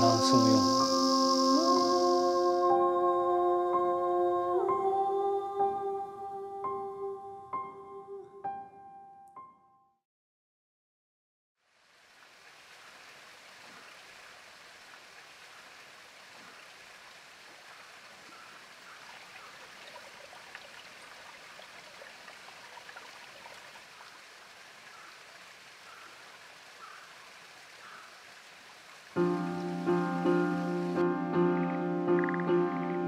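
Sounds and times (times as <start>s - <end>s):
shallow running water: 11.6s - 33.0s
drip-like ticks: 32.1s - 32.6s.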